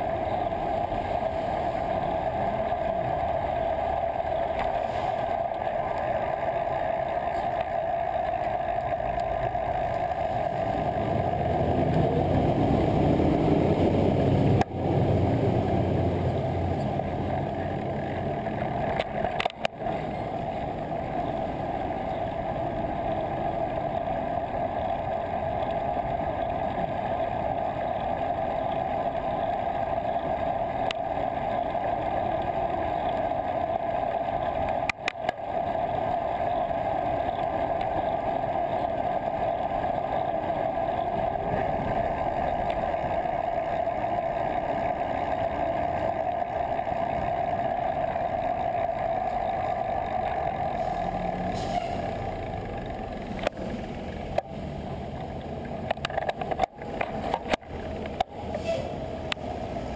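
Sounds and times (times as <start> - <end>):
muffled midrange hum: 0.0 - 59.9
road noise: 0.0 - 59.9
clicks: 18.0 - 21.3, 34.5 - 35.8, 55.1 - 59.5.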